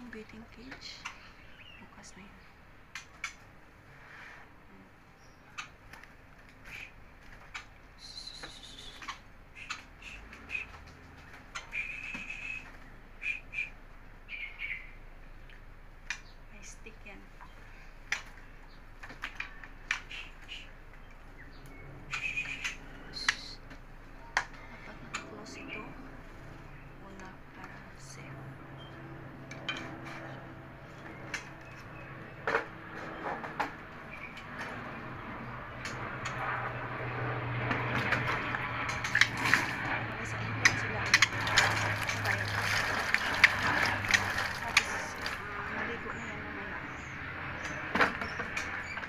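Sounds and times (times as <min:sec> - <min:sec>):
steady low hum: 0:00.0 - 0:49.0
bird whistling: 0:08.0 - 0:10.8, 0:11.6 - 0:14.9, 0:22.1 - 0:23.6.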